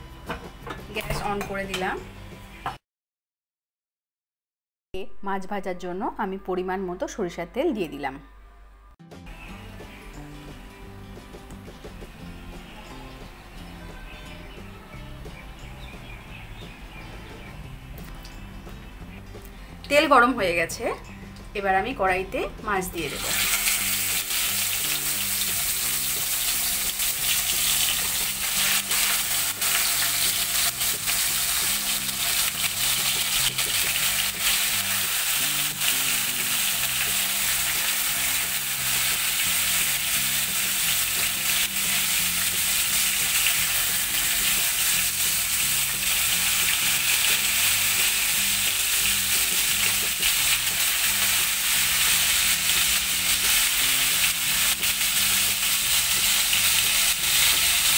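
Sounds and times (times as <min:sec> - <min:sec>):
fish sizzling in hot oil: 0:23.0 - 0:57.9.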